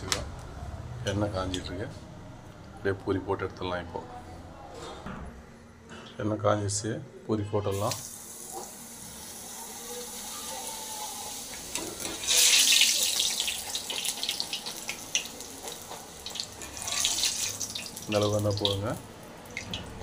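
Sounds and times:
oil sizzling and crackling: 7.7s - 20.0s.

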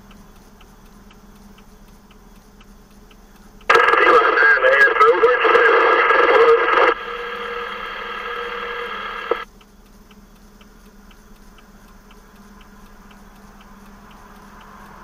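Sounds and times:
quiet even ticking: 0.0s - 15.0s
two-way radio hiss: 0.0s - 15.0s
radio click: 3.7s - 9.4s.

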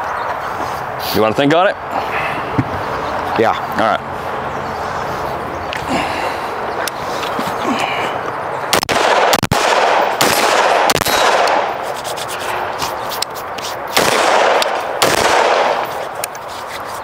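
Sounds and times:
rifle shots: 8.7s - 11.8s, 13.9s - 16.0s.

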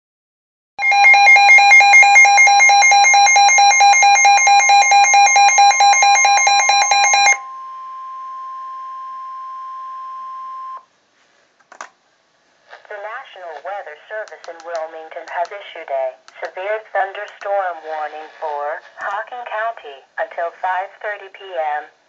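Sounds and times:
rapid two-tone alert beeps: 0.8s - 7.4s
steady warning tone: 0.8s - 10.8s.

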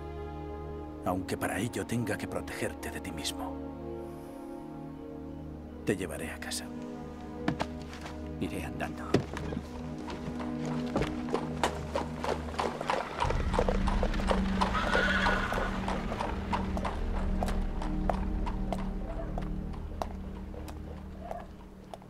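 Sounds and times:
hooves clip-clopping on street: 9.1s - 22.0s
horse whinnying: 14.6s - 15.9s.

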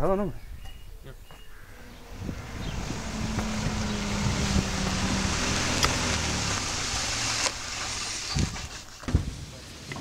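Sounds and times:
car engine running: 1.5s - 8.8s
rushing noise: 1.9s - 8.8s.

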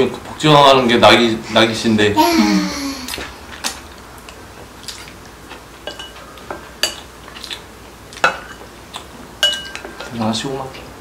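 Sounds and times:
utensils clinking on ceramic bowls: 9.4s - 10.2s.

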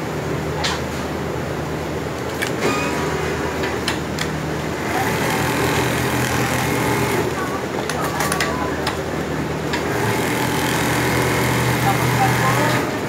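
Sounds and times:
sewing machines humming: 2.2s - 13.0s
sewing machine stitching: 4.8s - 7.4s, 9.8s - 13.0s.

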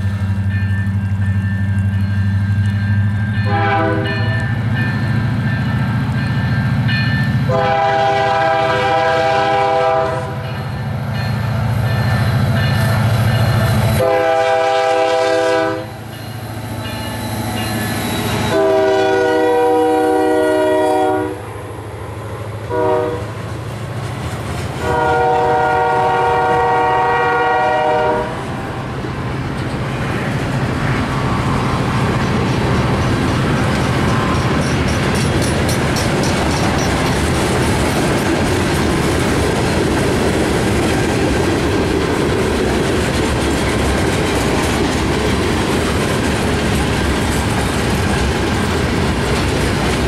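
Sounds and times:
locomotive air horn blasts: 3.4s - 4.4s, 7.5s - 10.4s, 14.0s - 16.0s, 18.4s - 21.4s, 22.7s - 23.4s, 24.8s - 28.4s.

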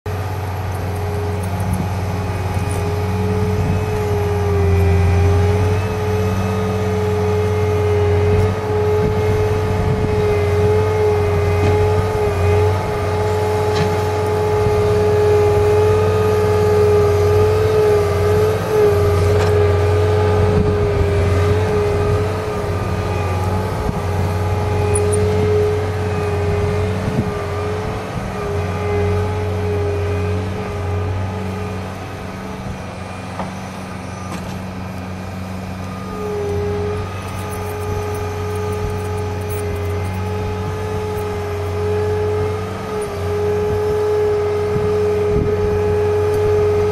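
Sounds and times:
diesel engine running under load: 0.0s - 46.9s.

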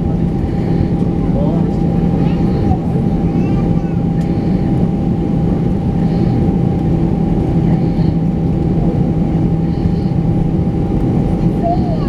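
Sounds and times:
constant low hum: 0.0s - 12.0s
jet engine and cabin rumble: 0.0s - 12.0s
thin steady whine: 0.0s - 12.0s.

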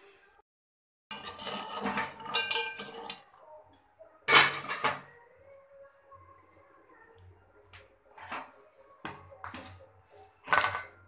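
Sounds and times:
metal cookware clattering: 1.1s - 3.3s, 4.3s - 5.1s, 8.1s - 11.0s.

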